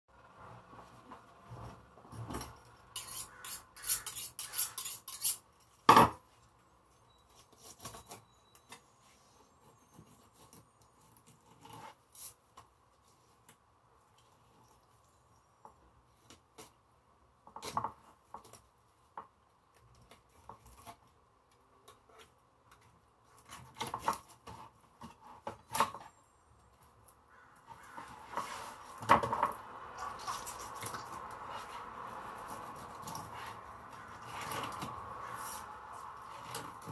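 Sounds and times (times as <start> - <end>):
knife rasping against fish scales: 3.0 - 5.4.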